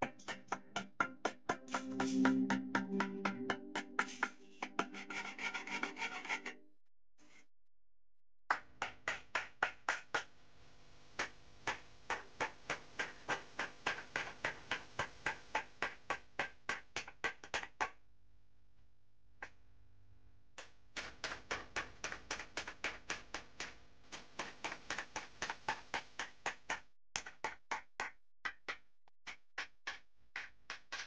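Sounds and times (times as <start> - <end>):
hand tool scraping steel mudguard: 4.8 - 6.5.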